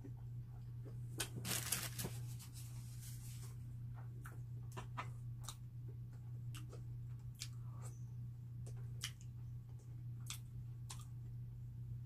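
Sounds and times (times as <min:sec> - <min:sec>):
low steady hum: 0:00.0 - 0:12.0
bread crust crackling: 0:01.2 - 0:02.6
chewing clicks: 0:08.6 - 0:11.1.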